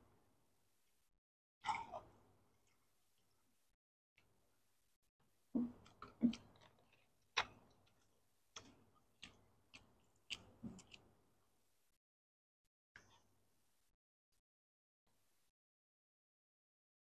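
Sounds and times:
wet chewing with mouth clicks: 5.6s - 11.1s.

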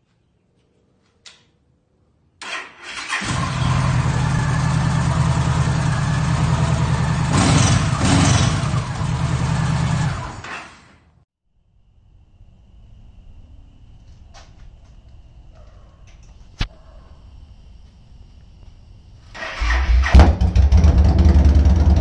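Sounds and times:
motorcycle engine idling: 3.4s - 10.4s, 20.0s - 22.0s.

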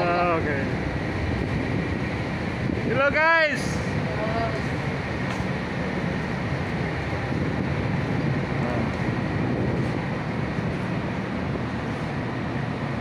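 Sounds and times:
ship engine hum: 0.0s - 13.0s
wind noise on microphone: 0.0s - 13.0s.

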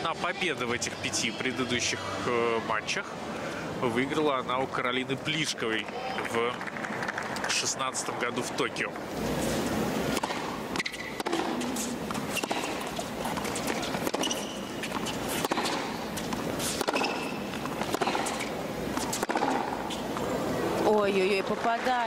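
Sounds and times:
stadium background: 0.0s - 22.0s
shoes squeaking on court: 9.1s - 20.9s
tennis ball struck by rackets: 10.1s - 20.3s.

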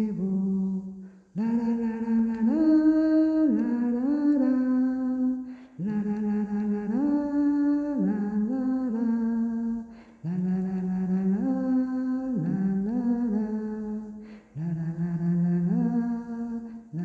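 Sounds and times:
wordless a cappella singing: 0.0s - 17.0s.

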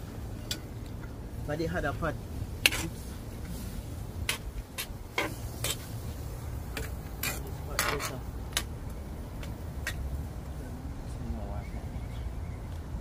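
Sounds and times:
metal utensils clinking on pot: 6.8s - 8.2s.

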